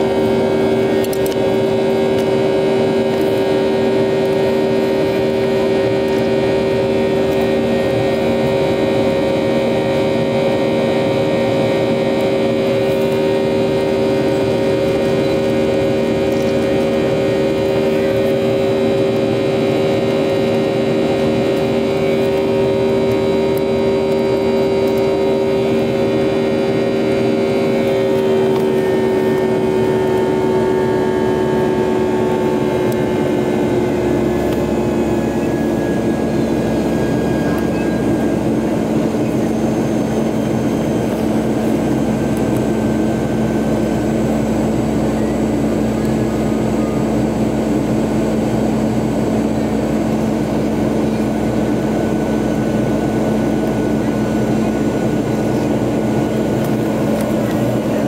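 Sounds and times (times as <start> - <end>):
airplane cabin engine rush: 0.0 - 58.0
steady hums: 0.0 - 58.0.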